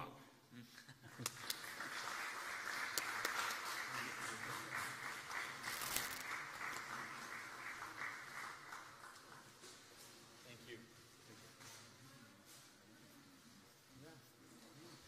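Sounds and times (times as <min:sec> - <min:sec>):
audience applauding: 0:01.1 - 0:09.6.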